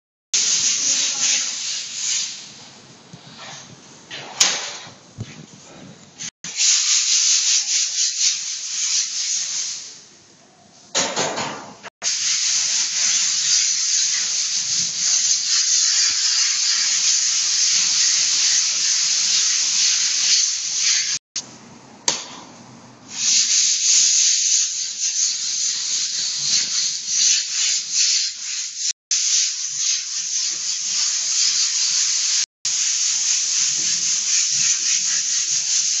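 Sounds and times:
rough scratchy hissing: 0.4s - 2.6s, 12.1s - 21.2s, 23.1s - 36.0s.

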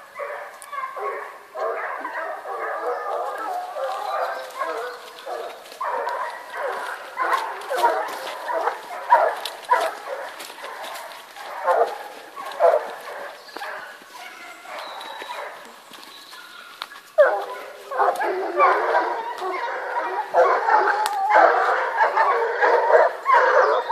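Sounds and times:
dogs barking and yelping: 0.0s - 23.9s.

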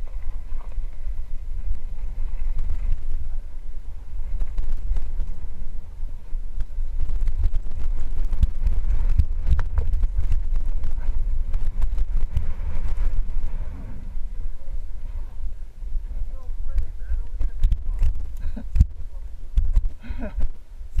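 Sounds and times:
bike rattling on rocky trail: 0.0s - 15.5s
wind buffeting microphone: 0.0s - 21.0s.

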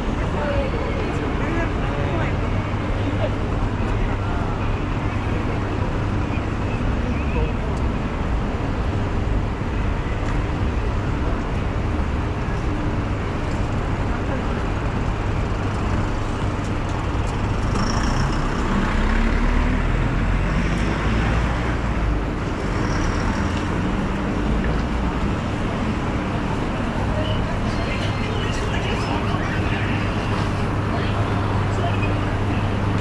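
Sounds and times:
road traffic: 0.0s - 33.0s
vehicle passing by: 17.4s - 25.8s.

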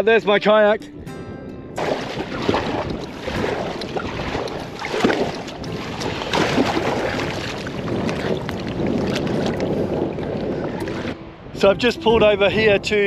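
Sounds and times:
paddle strokes splashing: 1.8s - 11.2s
water rushing along hull: 1.8s - 13.0s.

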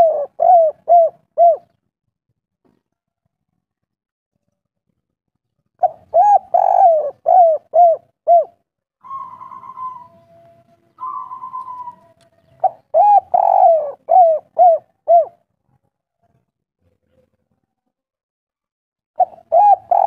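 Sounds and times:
dove cooing: 0.0s - 1.8s, 5.8s - 15.4s, 19.2s - 20.0s.

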